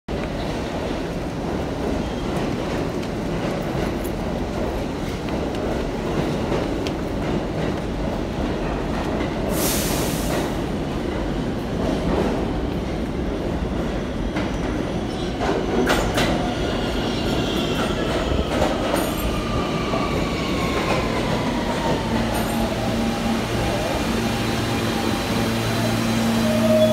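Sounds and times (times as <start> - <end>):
train wheels rumbling on rails: 0.1 - 26.9
train whine falling in pitch: 25.8 - 26.9.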